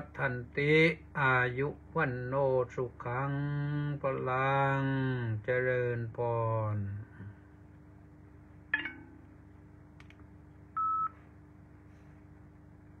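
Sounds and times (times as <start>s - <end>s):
faint steady hum: 0.0s - 13.0s
faint clicks: 10.0s - 10.3s.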